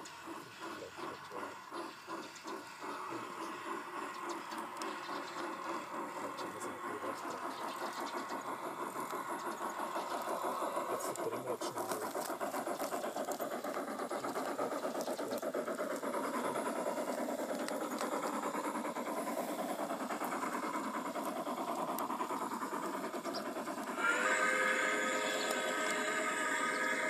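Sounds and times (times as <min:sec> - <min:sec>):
model steam locomotive chuffing: 0:00.0 - 0:27.0.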